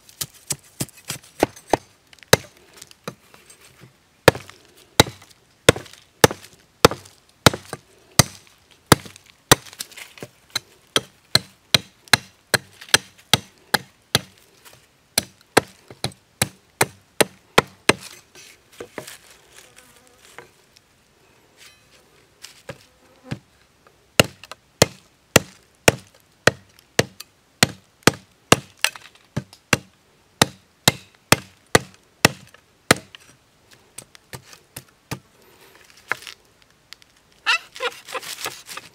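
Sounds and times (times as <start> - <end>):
machete chopping a stick: 4.3 - 10.3, 11.0 - 14.3, 15.2 - 18.1, 24.2 - 33.2.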